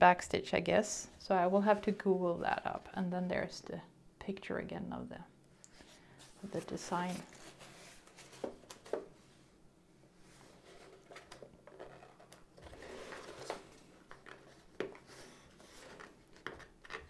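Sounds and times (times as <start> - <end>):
cardboard scraping and rustling: 6.4 - 9.0, 10.3 - 16.7.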